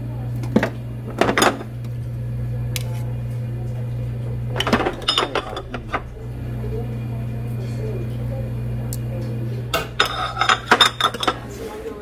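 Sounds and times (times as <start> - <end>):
steady low hum: 0.0 - 12.0
metal tongs clinking on trays: 4.6 - 6.1, 8.9 - 11.7.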